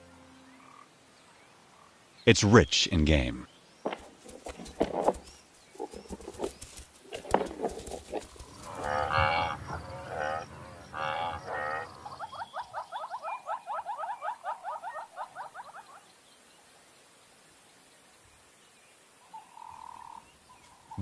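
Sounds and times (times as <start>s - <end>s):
buffalo lowing: 5.8s - 12.7s.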